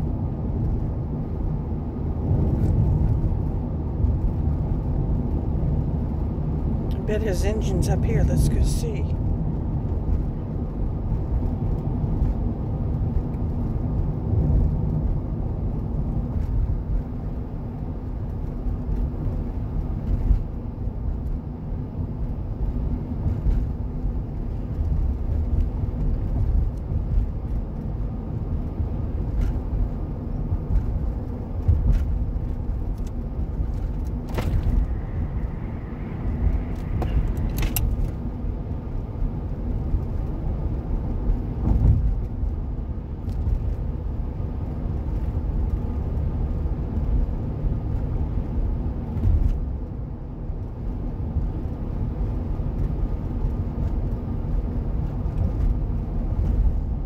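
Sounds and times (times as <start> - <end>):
tyre and engine rumble: 0.0 - 57.0.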